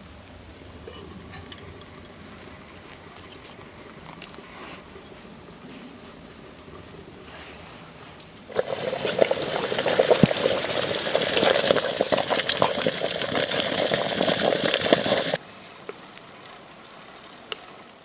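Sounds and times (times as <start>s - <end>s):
fire crackling and popping: 8.2s - 18.0s
water bubbling in kettle: 8.5s - 15.4s.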